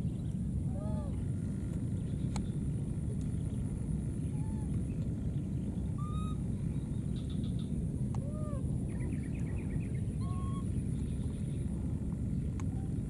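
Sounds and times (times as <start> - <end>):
low rumble: 0.0 - 13.0
baby monkeys coo calls: 5.9 - 6.4, 10.2 - 10.8.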